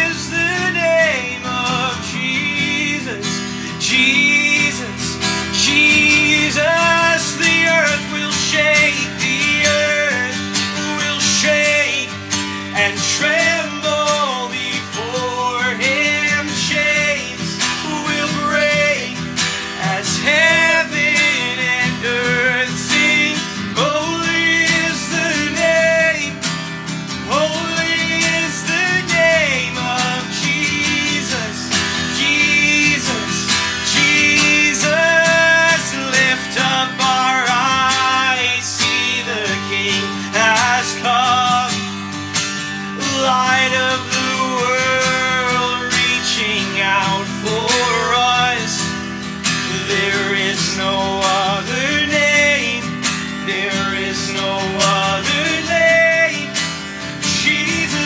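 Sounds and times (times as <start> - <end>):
acoustic guitar strumming: 0.0 - 58.0
men singing: 0.0 - 58.0.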